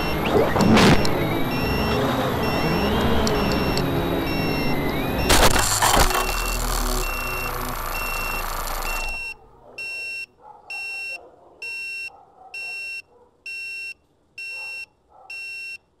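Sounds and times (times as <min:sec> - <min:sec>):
drone propellers whirring: 0:00.0 - 0:09.5
high electronic beep: 0:00.0 - 0:10.1.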